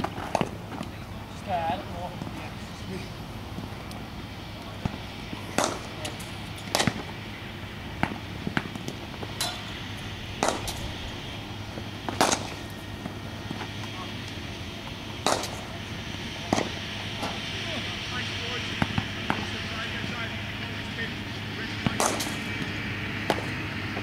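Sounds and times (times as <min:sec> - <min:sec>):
cricket bat striking ball: 0:05.6 - 0:05.8, 0:10.4 - 0:10.8, 0:15.3 - 0:15.6.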